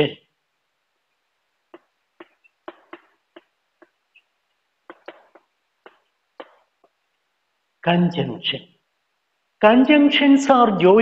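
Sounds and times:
chalk tapping on chalkboard: 1.7 - 4.1, 4.8 - 7.0.

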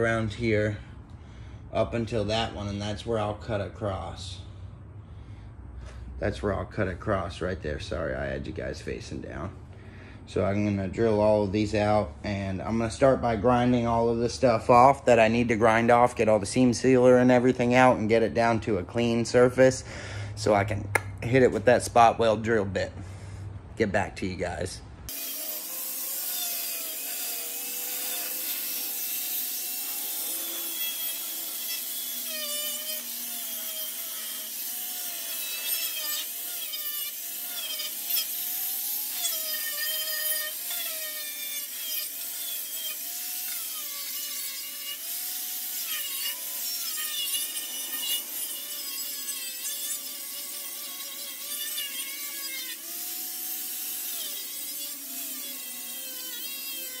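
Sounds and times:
angle grinder grinding metal: 25.1 - 57.0.

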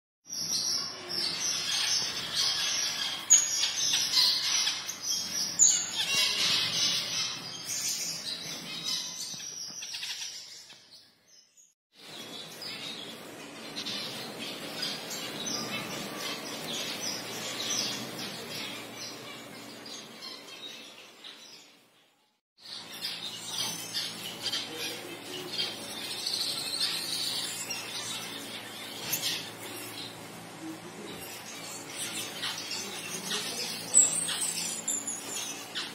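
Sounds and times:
finches chirping and twittering: 0.3 - 35.9.

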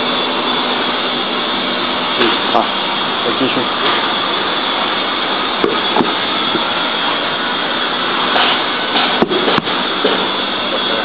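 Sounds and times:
blower-like machine noise: 0.0 - 11.0.

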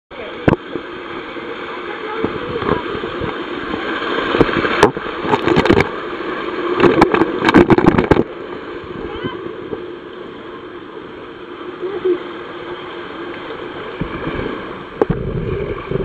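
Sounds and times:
rushing water: 0.1 - 16.0
rider sliding down water slide: 0.2 - 16.0.

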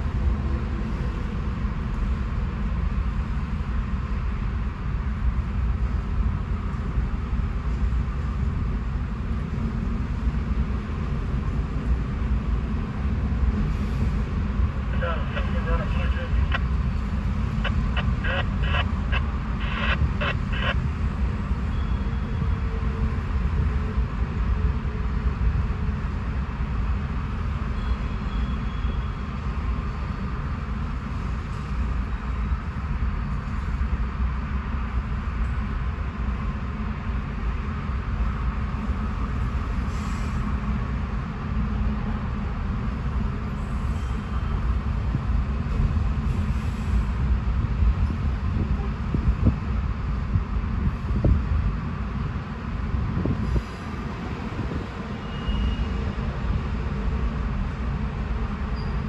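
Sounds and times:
train wheels rumbling on rails: 19.2 - 59.0.

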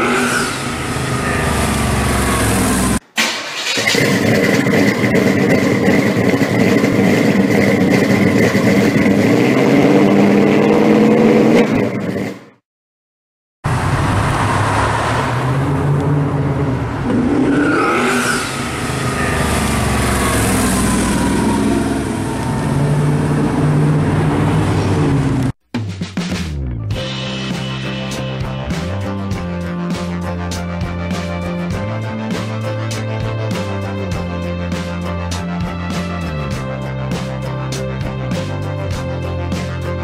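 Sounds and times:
car engine running: 0.0 - 3.0, 3.8 - 12.5, 18.4 - 25.6
car driving past: 13.7 - 25.5.

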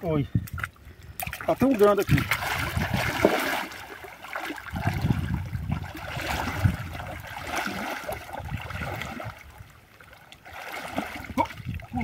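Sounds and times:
shallow water sloshing and splashing: 0.4 - 12.0.

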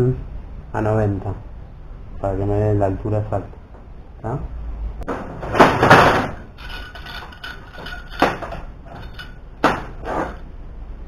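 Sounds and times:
steel clamp clanking on metal: 6.6 - 9.4.

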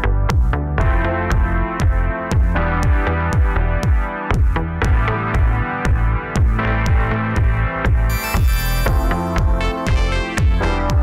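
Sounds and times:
deep kick drum: 0.0 - 8.1
held synth chords: 8.1 - 9.7.

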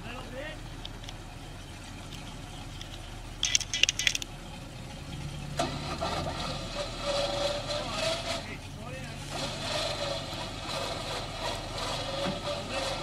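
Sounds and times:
truck engine humming: 0.0 - 13.0
sharp rattling clinks: 2.2 - 4.3
rough loud noise: 5.6 - 13.0.

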